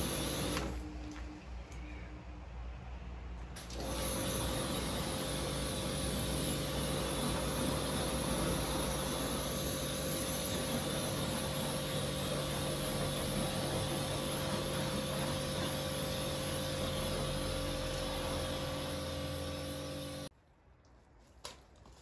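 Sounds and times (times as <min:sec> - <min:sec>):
pressure washer motor hum: 0:00.0 - 0:00.8, 0:03.6 - 0:20.3
water jet hissing: 0:00.0 - 0:00.8, 0:03.6 - 0:20.3.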